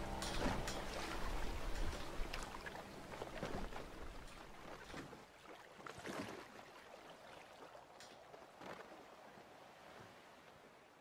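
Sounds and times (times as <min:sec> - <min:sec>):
water lapping and splashing: 0:00.0 - 0:11.0.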